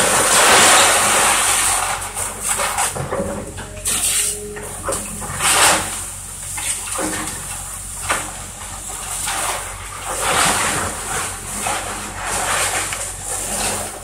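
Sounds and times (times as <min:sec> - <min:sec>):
falling debris: 0:00.0 - 0:06.0
excavator diesel engine running: 0:00.0 - 0:14.0.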